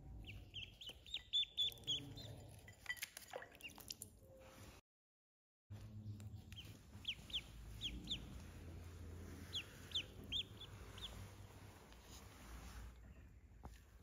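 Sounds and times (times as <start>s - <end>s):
duckling peeping: 0.2s - 2.4s, 6.4s - 11.8s
faint low hum: 5.7s - 13.7s.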